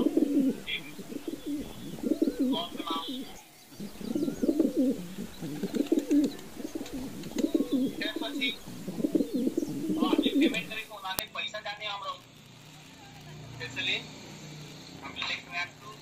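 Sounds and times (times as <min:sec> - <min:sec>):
high bird chirps: 0:00.0 - 0:10.9
pigeons cooing: 0:00.0 - 0:10.9.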